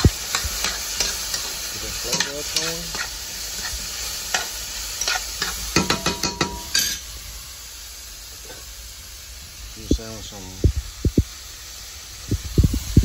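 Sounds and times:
spatula clicking and scraping pan: 0:00.0 - 0:07.0
vegetables sizzling in frying pan: 0:00.0 - 0:13.0.

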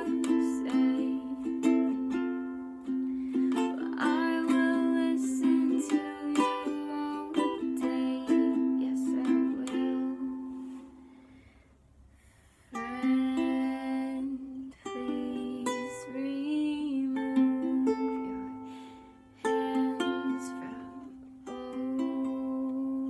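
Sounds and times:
woman singing softly: 0:00.0 - 0:11.0, 0:12.7 - 0:23.0
ukulele strumming chords: 0:00.0 - 0:11.2, 0:12.7 - 0:23.0.

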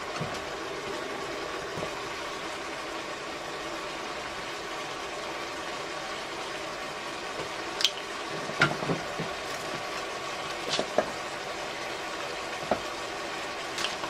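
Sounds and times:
onions and pasta sizzling in a pot: 0:00.0 - 0:14.0.

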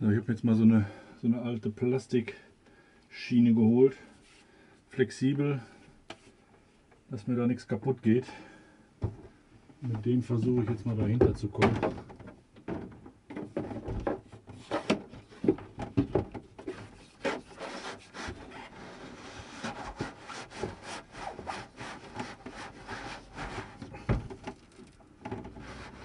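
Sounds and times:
plastic strip scraping behind panel: 0:16.6 - 0:26.0.

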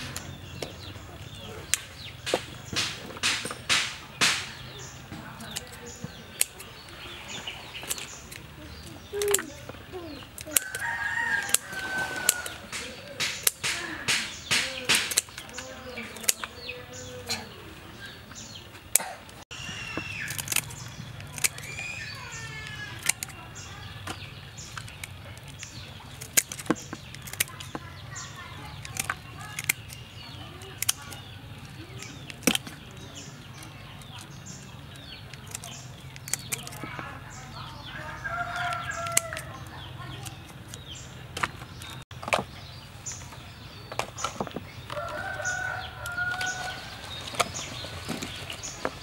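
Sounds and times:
scissors snipping prawn shells: 0:00.0 - 0:17.5, 0:19.8 - 0:42.4
birds calling: 0:00.0 - 0:49.0.

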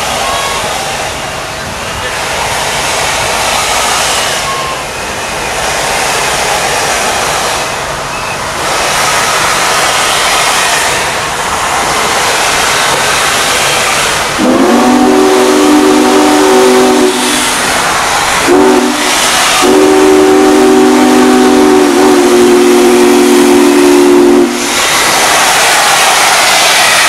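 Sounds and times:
steam hissing: 0:00.0 - 0:27.0
steam whistle blasts: 0:14.4 - 0:17.6, 0:18.5 - 0:24.8.

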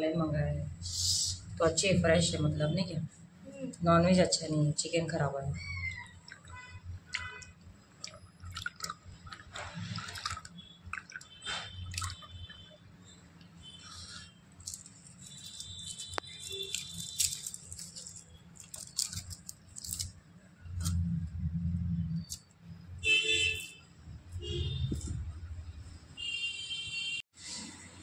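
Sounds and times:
water splashing and dripping: 0:06.0 - 0:12.8.

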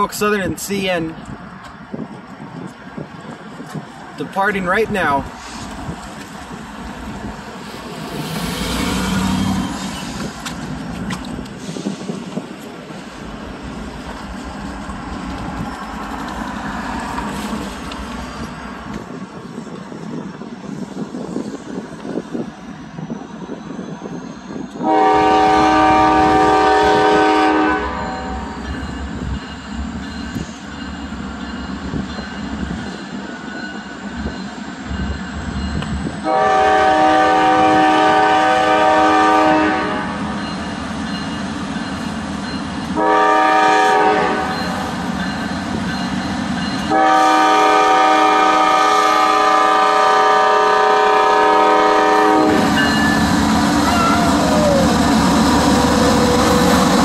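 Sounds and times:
diesel train rumbling: 0:00.0 - 0:57.0
locomotive air horn blasts: 0:24.8 - 0:28.6, 0:36.2 - 0:40.2, 0:43.0 - 0:44.6, 0:46.9 - 0:52.9.

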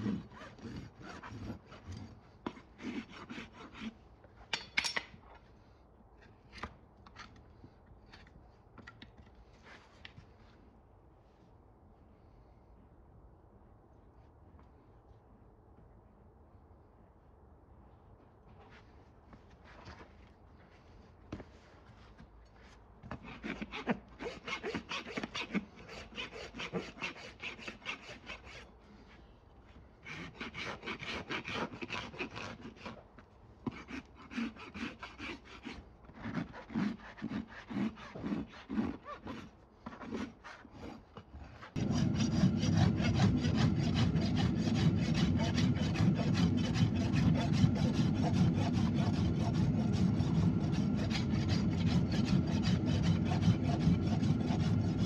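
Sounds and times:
rasp scraping a hoof: 0:00.0 - 0:05.0, 0:21.9 - 0:29.2, 0:30.0 - 0:55.0.

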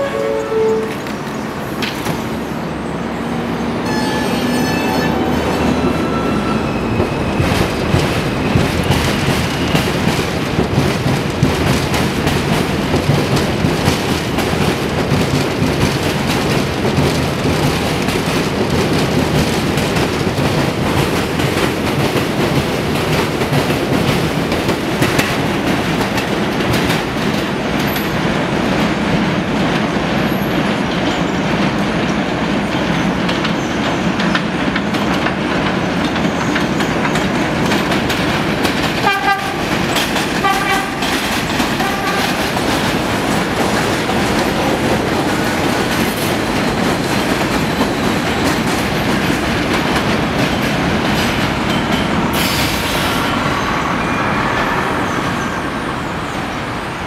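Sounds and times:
train rumbling on elevated track: 0:00.0 - 0:57.0
wheels clattering over rail joints: 0:29.6 - 0:52.8.

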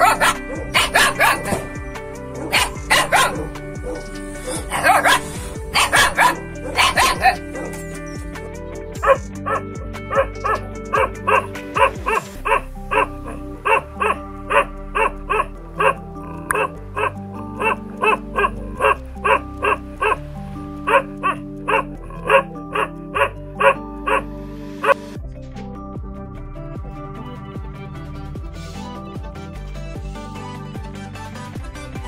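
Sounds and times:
dog barking: 0:00.0 - 0:01.8, 0:02.4 - 0:07.8, 0:09.0 - 0:20.2, 0:20.9 - 0:25.1
background music: 0:00.0 - 0:32.0.

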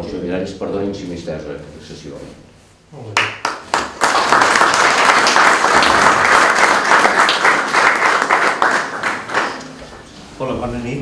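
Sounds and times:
people applauding: 0:03.2 - 0:10.1.

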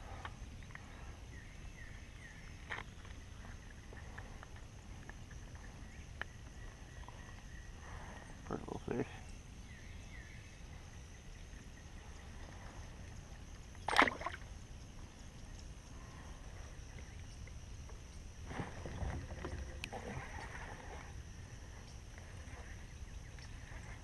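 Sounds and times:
fish splashing into water: 0:13.8 - 0:14.5.

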